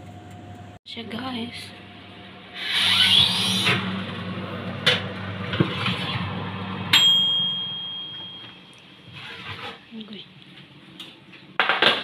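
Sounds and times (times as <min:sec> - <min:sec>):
sharp metallic ding: 0:06.9 - 0:08.7.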